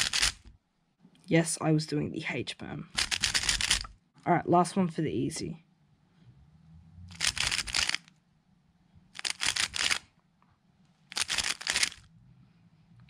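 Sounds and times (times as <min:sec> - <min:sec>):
puzzle cube turning clicks: 0:00.0 - 0:00.4, 0:02.9 - 0:04.0, 0:07.1 - 0:08.1, 0:09.2 - 0:10.1, 0:11.1 - 0:12.0.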